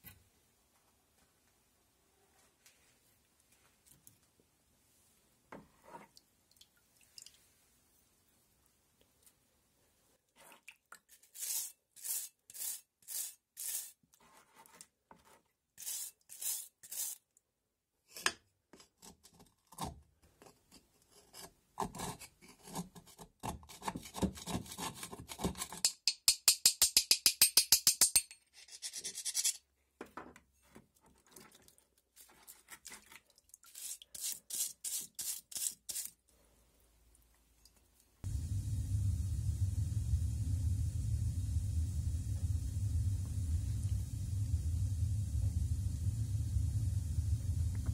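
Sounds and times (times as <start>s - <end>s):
brush scrubbing metal: 11.2s - 14.0s
screwdriver scraping metal: 28.6s - 29.6s.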